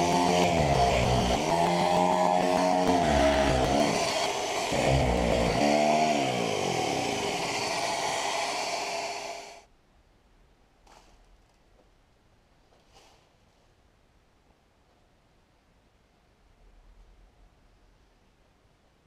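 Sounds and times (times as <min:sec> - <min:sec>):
electric power tool cutting wood: 0:00.0 - 0:09.6.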